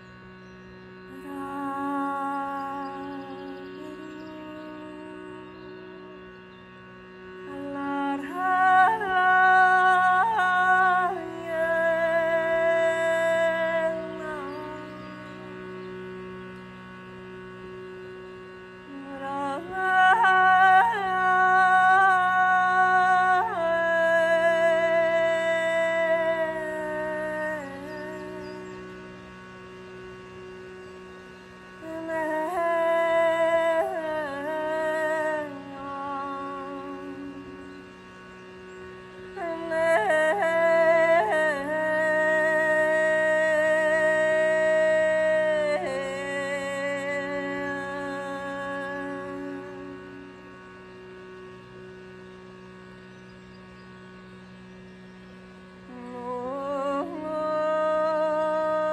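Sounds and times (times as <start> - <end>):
shrutibox drone: 0.0 - 58.9
woman singing wordlessly: 1.1 - 6.0, 7.5 - 15.6, 18.9 - 28.8, 31.8 - 37.9, 39.4 - 50.4, 55.9 - 58.9.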